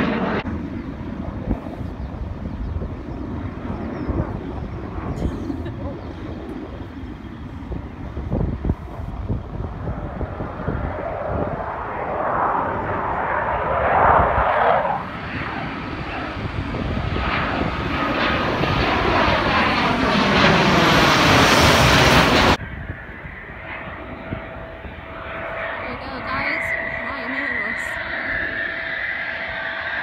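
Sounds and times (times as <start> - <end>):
jet flying low overhead: 0.0 - 30.0.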